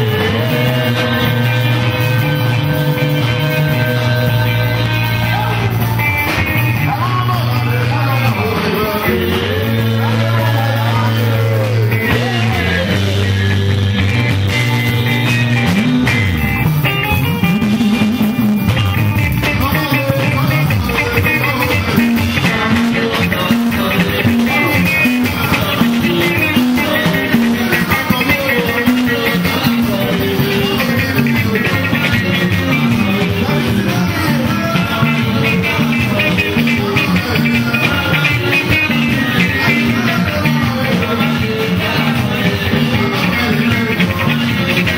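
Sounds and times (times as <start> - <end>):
live band music: 0.0 - 44.9
person singing: 0.0 - 44.9
repeating guitar figure: 0.0 - 44.9.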